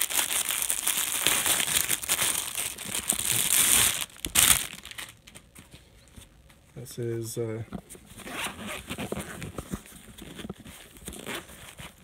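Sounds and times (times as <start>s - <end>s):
packaging crinkling and rustling: 0.0s - 5.8s.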